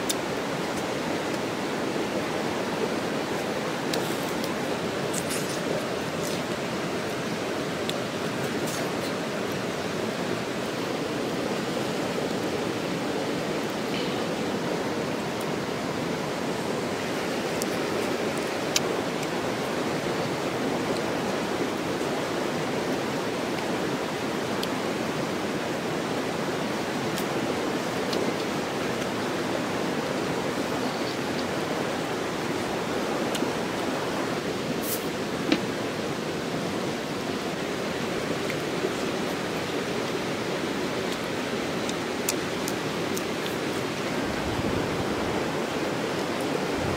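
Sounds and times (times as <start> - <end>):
steady rushing background noise: 0.0 - 46.9.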